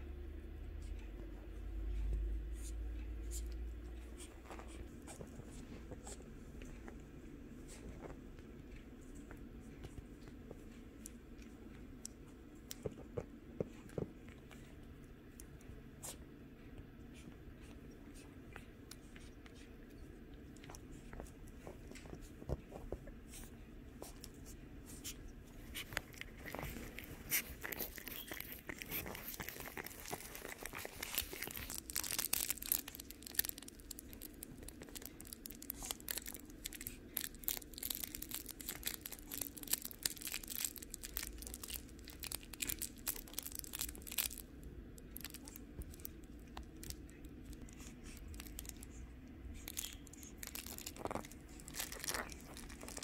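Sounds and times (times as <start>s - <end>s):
puppy claws scratching clicks: 25.0s - 44.4s.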